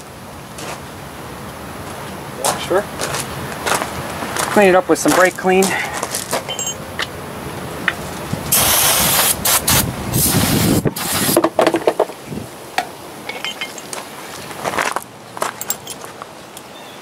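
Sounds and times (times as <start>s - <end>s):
aerosol spray hissing: 8.5s - 11.4s.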